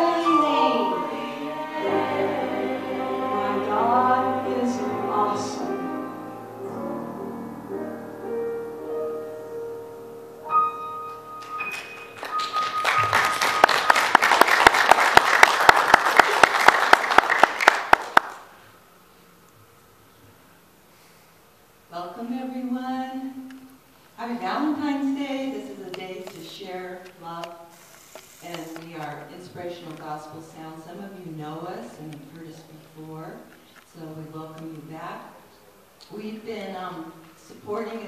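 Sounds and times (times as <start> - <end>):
woman singing into a microphone: 0.0 - 2.2, 3.4 - 5.9
audience applause: 11.4 - 18.5.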